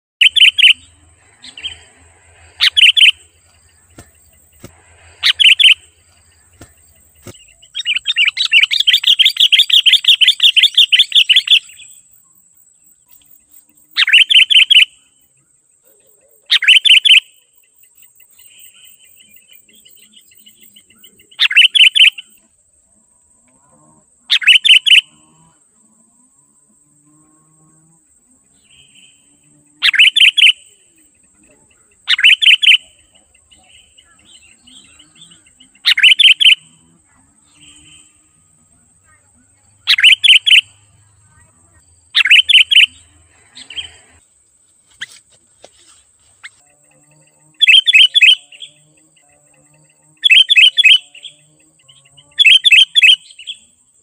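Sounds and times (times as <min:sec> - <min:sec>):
faint high whine: 0:00.2 - 0:09.7
rapid chattering bird notes: 0:00.2 - 0:11.6, 0:38.9 - 0:44.0
bulbul singing bubbly phrases: 0:31.4 - 0:44.0.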